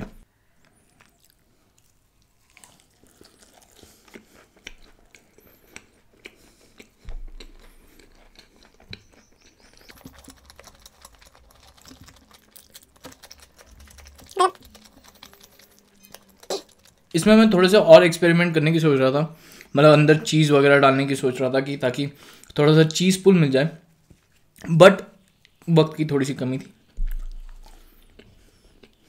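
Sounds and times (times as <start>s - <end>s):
close chewing with wet mouth clicks: 0.8s - 17.2s, 26.9s - 29.0s
low thump: 27.0s - 27.6s.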